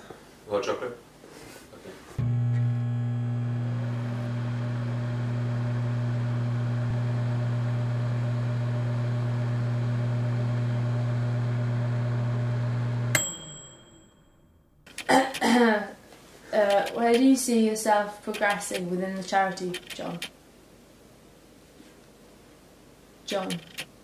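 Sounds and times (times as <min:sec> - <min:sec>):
microwave oven humming: 0:02.2 - 0:13.9
microwave timer bell ding: 0:13.0 - 0:14.7.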